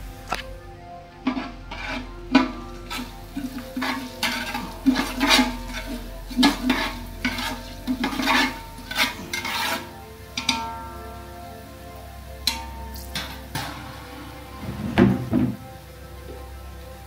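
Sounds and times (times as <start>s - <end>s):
metal spoon scraping a pot: 1.2s - 10.8s
spices sizzling in hot oil: 1.7s - 14.7s.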